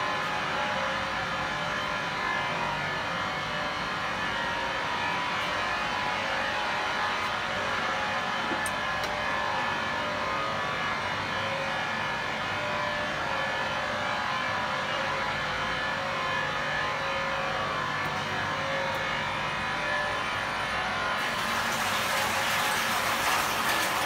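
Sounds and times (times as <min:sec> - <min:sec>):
mixer machine running: 0:21.2 - 0:24.0.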